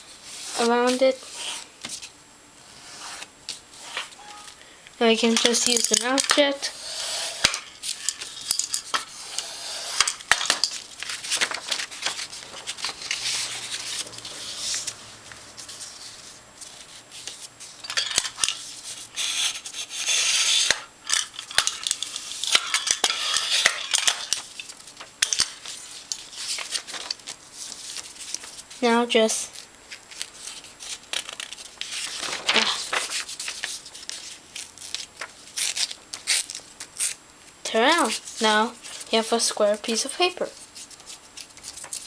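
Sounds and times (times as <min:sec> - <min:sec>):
paper rustling and sliding on glass: 0:06.8 - 0:20.8, 0:30.2 - 0:34.4.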